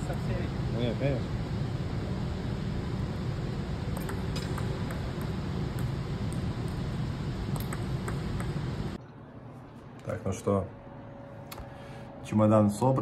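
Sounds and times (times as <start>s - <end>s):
sports hall hum: 0.0s - 13.0s
table tennis ball clicks: 4.0s - 6.8s, 7.5s - 8.6s.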